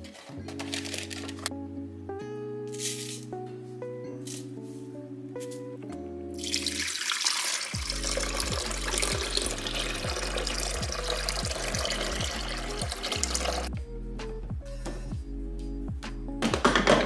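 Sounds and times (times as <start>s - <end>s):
background music with beat: 0.0s - 6.6s, 7.8s - 17.0s
water running from tap: 6.4s - 13.7s.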